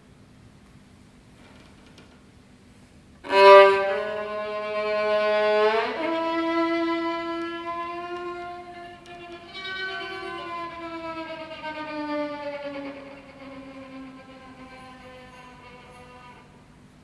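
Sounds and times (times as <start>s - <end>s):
solo violin bowed: 3.2s - 16.8s.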